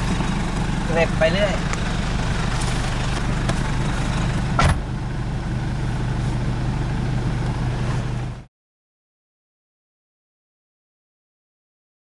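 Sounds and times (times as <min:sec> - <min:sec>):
engine idling: 0:00.0 - 0:08.5
sharp thump: 0:04.6 - 0:04.9.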